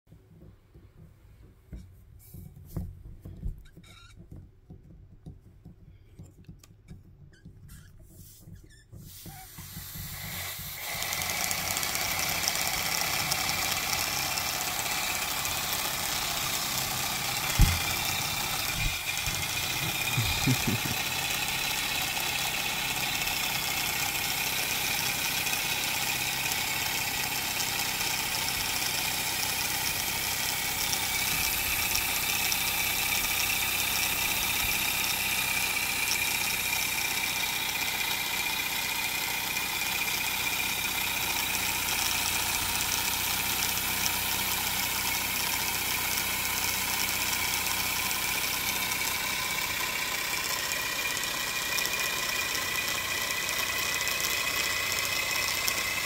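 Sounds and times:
paper engine ticking rattle: 0:03.0 - 0:56.0.

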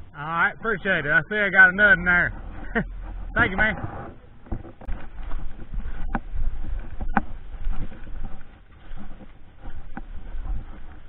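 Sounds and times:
rustling through grass and brush: 0:02.3 - 0:11.0.

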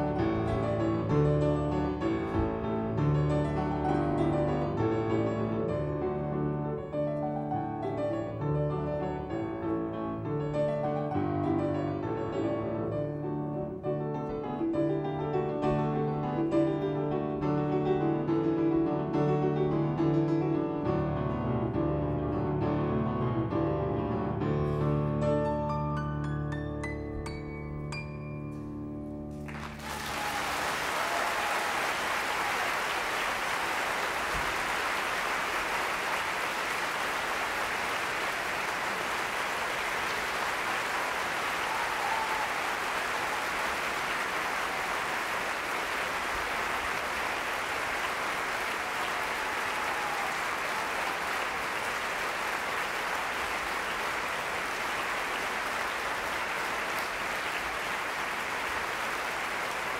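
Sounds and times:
piano music: 0:00.0 - 0:29.8
audience applauding: 0:29.3 - 0:59.9.

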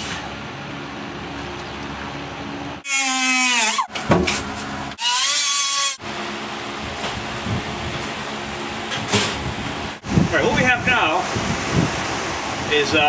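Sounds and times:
fan humming: 0:00.3 - 0:13.0
cut-off wheel cutting metal: 0:04.9 - 0:06.0.

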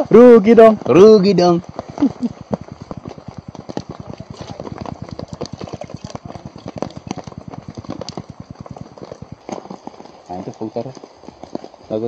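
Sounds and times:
rain pattering on a tarp: 0:00.0 - 0:12.0
water dripping into a bottle: 0:05.2 - 0:06.2.

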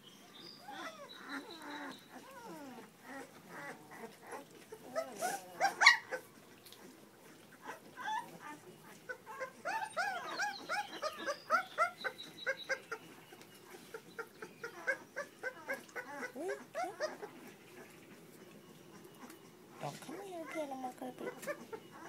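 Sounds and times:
puppies whimpering: 0:00.1 - 0:22.0.

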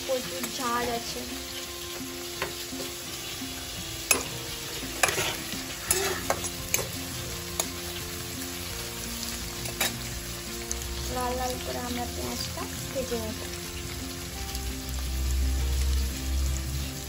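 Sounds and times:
onions sizzling in hot oil: 0:00.0 - 0:17.0
metal spatula scraping pan: 0:04.0 - 0:07.9.

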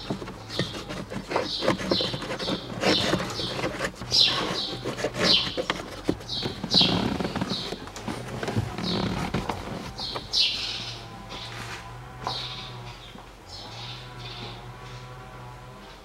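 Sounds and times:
plastic clicks and scraping: 0:00.0 - 0:10.3.

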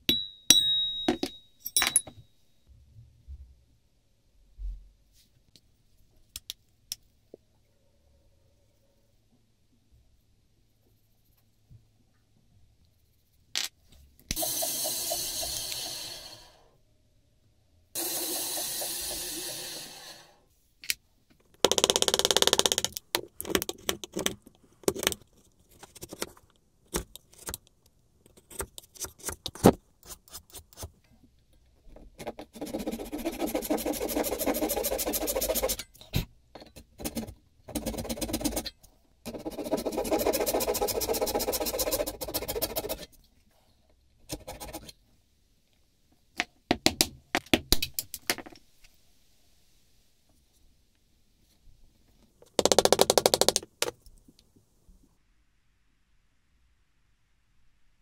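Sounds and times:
hand saw cutting wood: 0:32.6 - 0:35.8, 0:39.3 - 0:43.0
wood scraping strokes: 0:32.6 - 0:35.8, 0:39.3 - 0:43.0.

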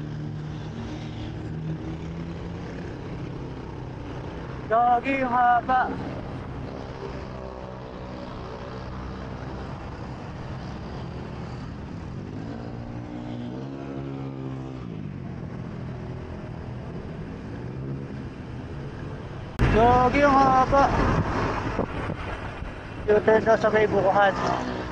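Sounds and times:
wind and road noise: 0:00.0 - 0:24.9.

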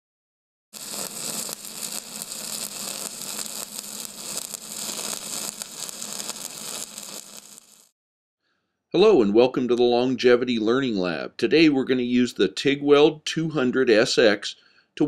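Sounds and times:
crackling hiss: 0:00.8 - 0:07.9.

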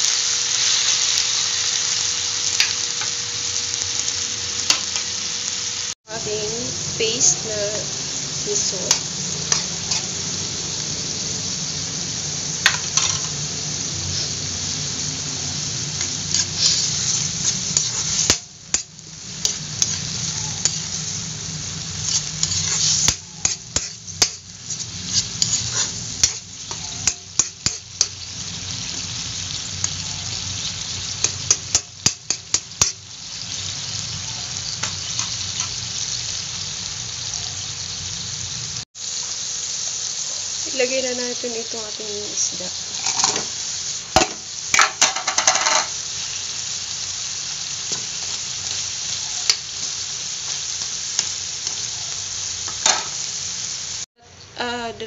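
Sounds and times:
food sizzling in a wok: 0:00.0 - 0:55.0
metal spoon scraping a pan: 0:08.6 - 0:10.2, 0:12.6 - 0:13.4, 0:16.0 - 0:21.0, 0:22.0 - 0:30.5, 0:44.8 - 0:46.0.

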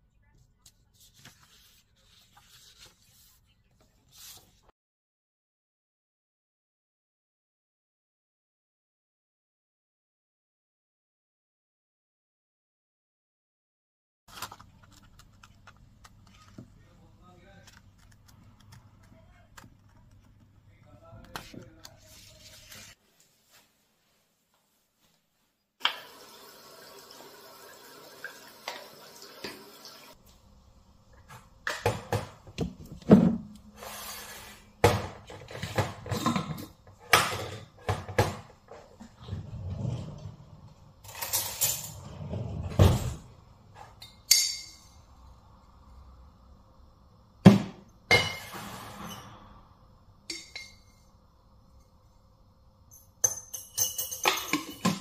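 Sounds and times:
jars and lids knocking and clinking: 0:52.9 - 0:55.0.

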